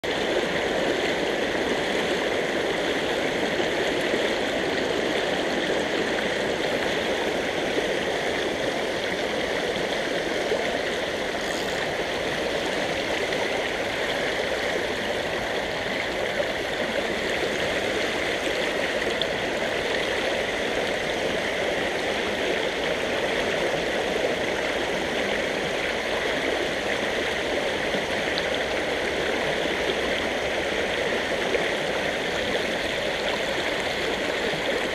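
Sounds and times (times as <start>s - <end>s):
water rushing over rocks: 0.0s - 34.9s.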